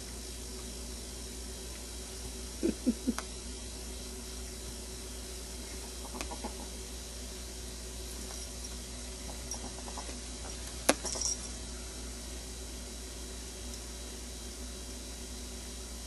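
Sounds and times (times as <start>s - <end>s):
steady background hiss: 0.0s - 16.0s
ferret clucking dooks: 5.7s - 6.8s, 9.2s - 11.1s.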